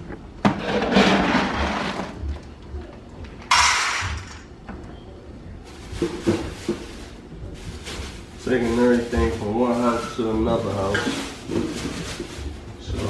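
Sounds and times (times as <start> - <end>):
kibble scooping rustle: 5.7 - 13.0.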